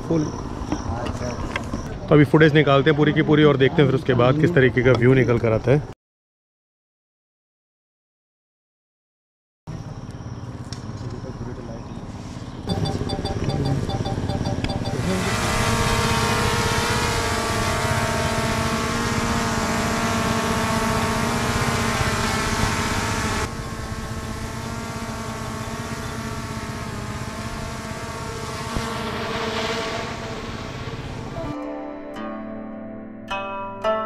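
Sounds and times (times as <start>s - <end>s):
motor running: 12.7s - 31.4s
held pitched tones: 12.7s - 31.5s.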